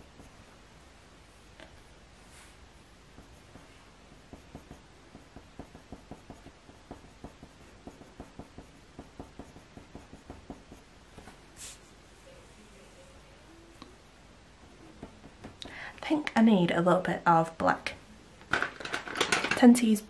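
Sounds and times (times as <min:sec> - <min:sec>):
pencil scratching on paper: 0:00.0 - 0:01.0, 0:02.5 - 0:10.9.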